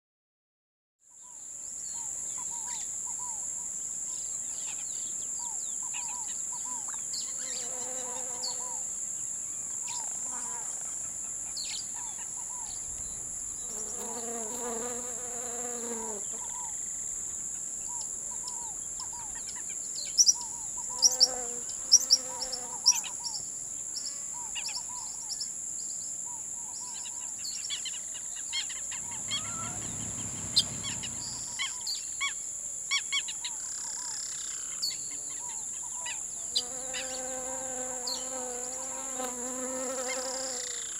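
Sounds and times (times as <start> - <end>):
insects droning: 1.1 - 40.9
bird chirps: 24.0 - 32.4.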